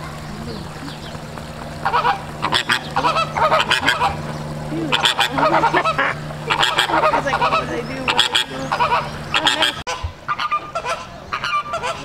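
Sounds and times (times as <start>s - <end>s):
faint low hum: 0.0s - 12.0s
flamingos honking: 0.0s - 12.0s.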